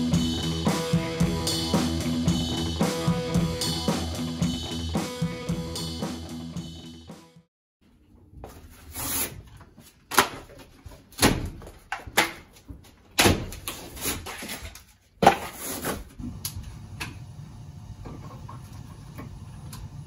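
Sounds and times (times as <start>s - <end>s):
plaster knocked off a wall: 11.2s - 12.4s, 13.2s - 13.8s.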